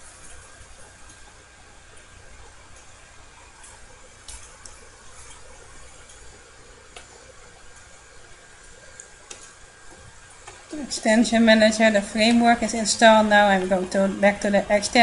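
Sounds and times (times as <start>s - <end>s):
low steady room hiss: 0.0s - 15.0s.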